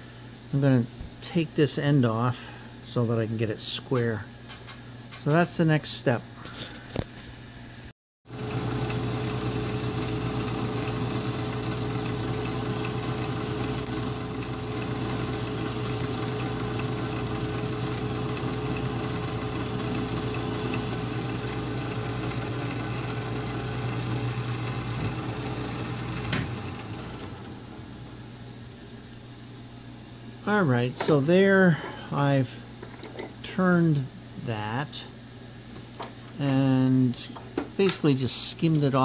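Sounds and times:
lathe running: 8.3 - 28.2.

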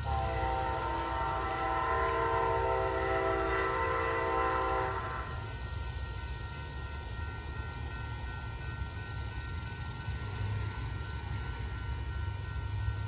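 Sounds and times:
locomotive air horn chord: 0.0 - 5.5
passing train rumble: 0.0 - 13.0.

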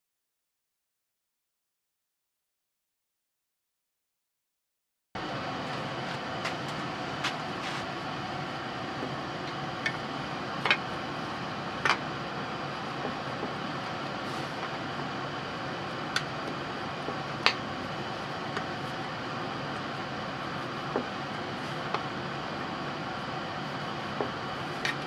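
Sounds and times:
workshop background noise: 5.2 - 25.0.

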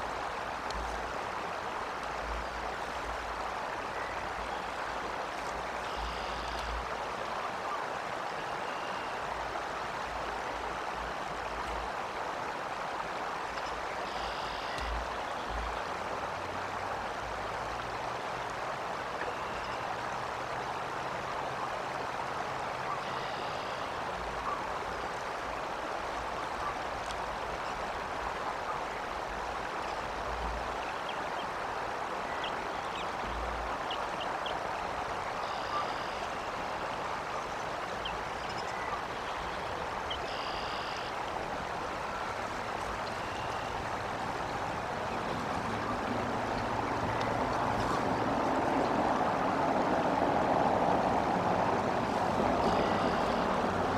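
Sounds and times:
steady outdoor rushing noise: 14.2 - 53.9.

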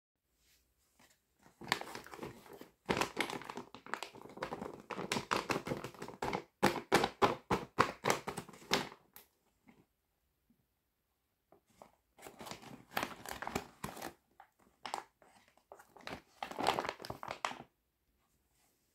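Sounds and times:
plastic packaging crinkling: 1.6 - 6.4, 12.2 - 17.7.

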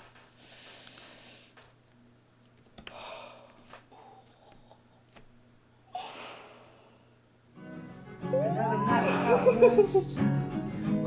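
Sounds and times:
soft breaths: 0.2 - 1.7, 2.8 - 7.3
woman gasping: 2.9 - 5.0, 5.8 - 7.1
soft guitar music: 7.6 - 11.0.

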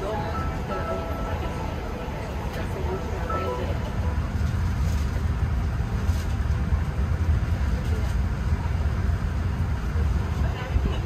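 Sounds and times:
faint voices: 0.0 - 5.2
airliner cabin low rumble: 0.0 - 11.0.

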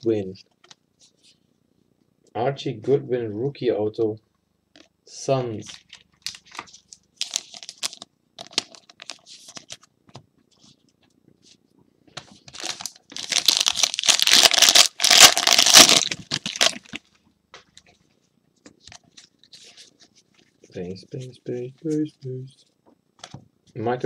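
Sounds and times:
foil wrapper crinkling and tearing: 5.7 - 9.8, 12.5 - 17.0.

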